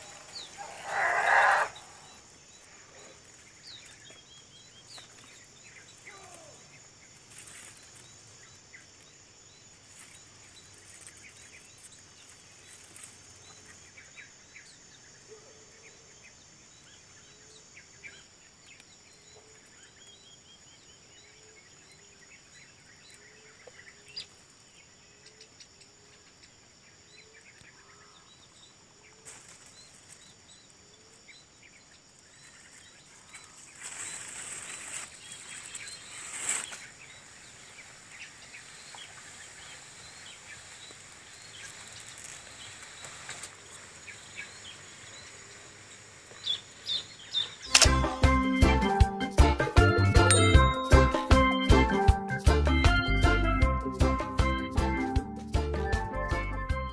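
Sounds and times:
low animal call: 0.0s - 2.2s
bird chirps: 0.0s - 49.0s
insect drone: 0.0s - 49.7s.

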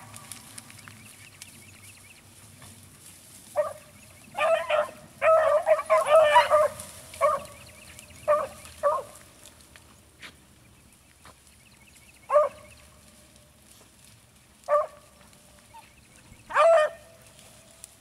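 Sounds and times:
hounds baying: 3.5s - 9.3s, 12.2s - 12.9s, 14.6s - 17.3s.

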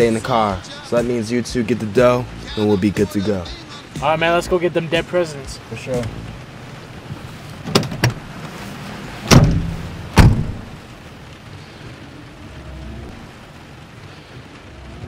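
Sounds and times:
background hiss: 0.0s - 15.0s
car doors slamming: 7.1s - 8.6s, 9.2s - 10.9s
car door latches clicking: 7.6s - 8.3s, 9.3s - 10.6s.

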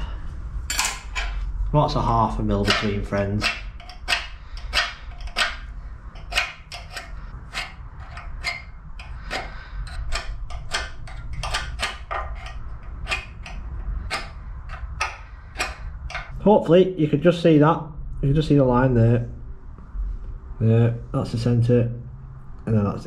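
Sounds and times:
steady low hum: 0.0s - 23.0s
metallic clicks and taps of tools: 2.6s - 5.6s, 6.2s - 16.4s.

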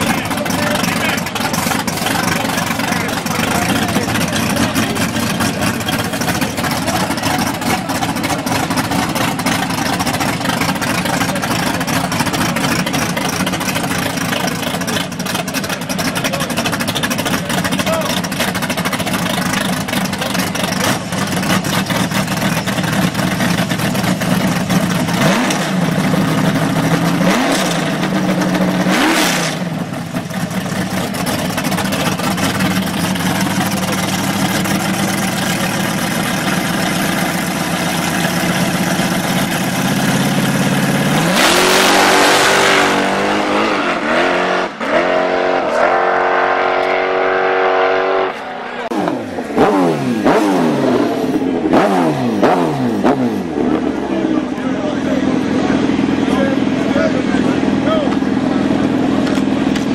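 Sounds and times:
car engine idling and revving: 0.0s - 59.9s.

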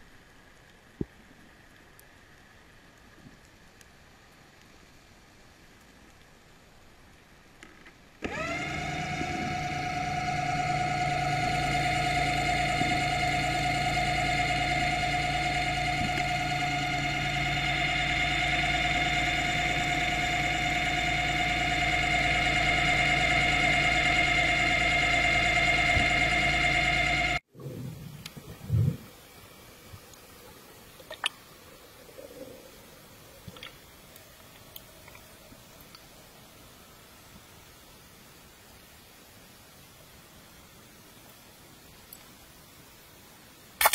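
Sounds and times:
electric motor whining: 8.2s - 27.4s.

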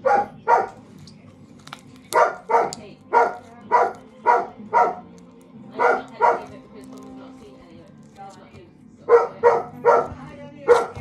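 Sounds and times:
dog barking: 0.0s - 0.8s, 2.1s - 5.1s, 5.7s - 6.7s, 9.0s - 11.0s.

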